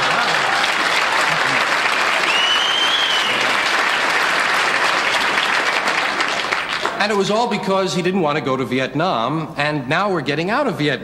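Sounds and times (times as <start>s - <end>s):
audience applauding: 0.0s - 7.2s
whistle from crowd: 2.2s - 3.5s.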